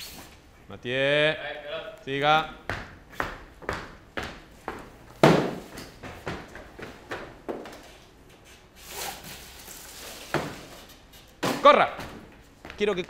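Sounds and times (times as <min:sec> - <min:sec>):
cardboard box thumps: 0:05.2 - 0:05.7.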